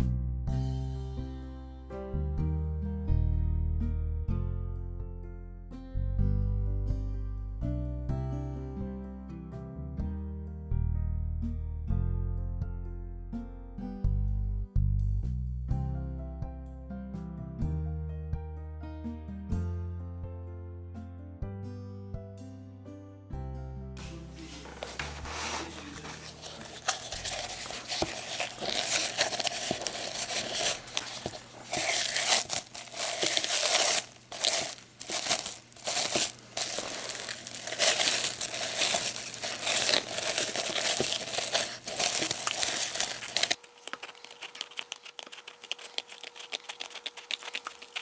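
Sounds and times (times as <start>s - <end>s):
cling film crinkling: 24.0s - 48.0s.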